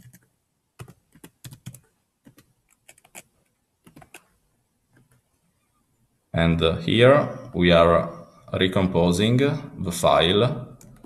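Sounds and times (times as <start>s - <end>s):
computer keyboard typing: 0.0s - 4.3s.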